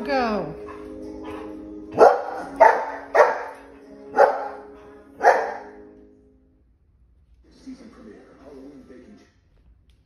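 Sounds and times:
music from television: 0:00.0 - 0:10.0.

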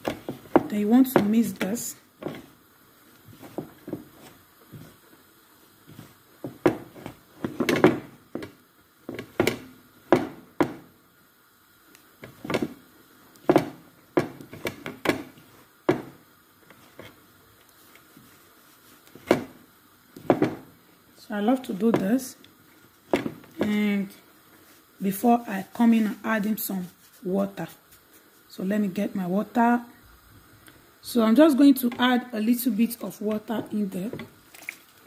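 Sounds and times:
hands kneading dough in bowl: 0:03.2 - 0:05.2, 0:05.8 - 0:10.8, 0:23.0 - 0:28.5.

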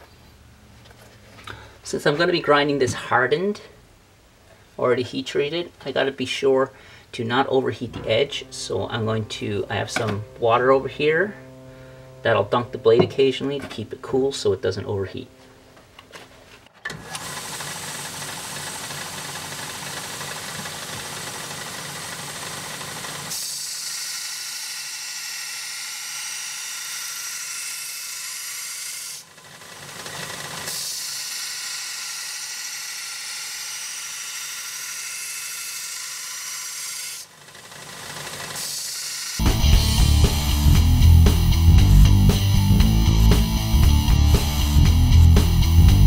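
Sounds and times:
belt grinder whine: 0:16.9 - 0:46.0
steel grinding on belt: 0:30.3 - 0:39.4.

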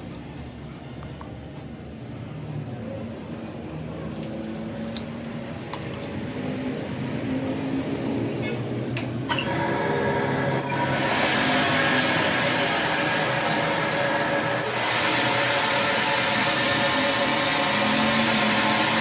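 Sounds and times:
lathe machine hum: 0:09.2 - 0:19.0.

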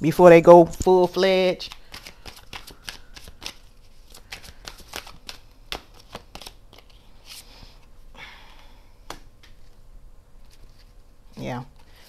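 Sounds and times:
cards snapping: 0:01.6 - 0:07.4, 0:09.0 - 0:09.7
cards sliding rustle: 0:01.6 - 0:08.0, 0:10.4 - 0:11.0.

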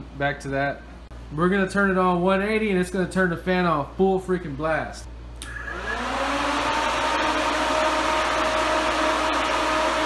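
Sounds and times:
cooling fan whirring: 0:00.0 - 0:10.0.

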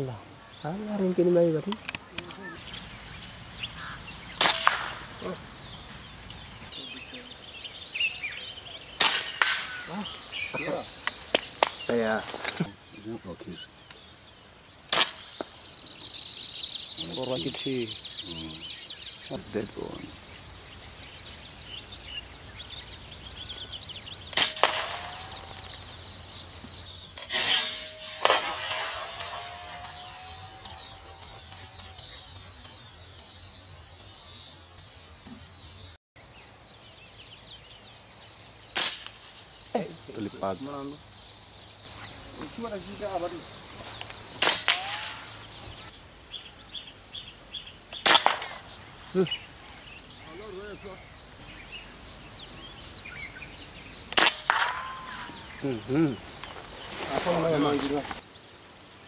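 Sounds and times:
bird chirping: 0:00.0 - 0:59.0
high insect buzz: 0:00.0 - 0:59.0
quieter crack: 0:04.2 - 0:06.5, 0:08.9 - 0:12.8, 0:14.9 - 0:15.6, 0:24.1 - 0:33.3, 0:38.7 - 0:39.4, 0:44.0 - 0:45.4, 0:47.9 - 0:49.3, 0:54.0 - 0:58.2
air rifle shot: 0:04.4 - 0:05.3, 0:09.0 - 0:10.0, 0:14.9 - 0:15.5, 0:24.3 - 0:25.8, 0:27.2 - 0:30.1, 0:38.8 - 0:39.4, 0:44.4 - 0:45.4, 0:48.0 - 0:48.8, 0:54.1 - 0:55.4
air rifle cracks: 0:48.0 - 0:48.7, 0:54.1 - 0:55.0.

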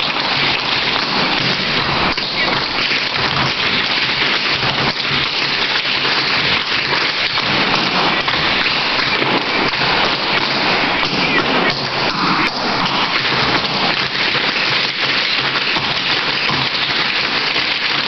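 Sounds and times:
tap shoes on hardwood floor: 0:11.0 - 0:16.9.

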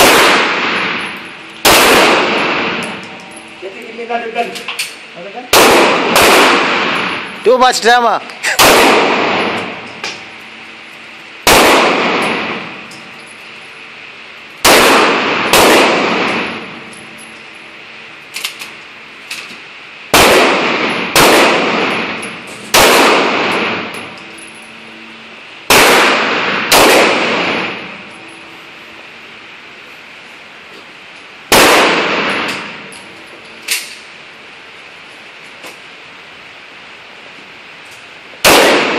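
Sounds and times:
pistol shots echoing: 0:00.0 - 0:03.4, 0:05.5 - 0:07.3, 0:08.5 - 0:10.0, 0:11.4 - 0:12.8, 0:14.6 - 0:16.8, 0:20.1 - 0:24.1, 0:25.7 - 0:28.0, 0:31.5 - 0:32.9, 0:38.4 - 0:38.9.

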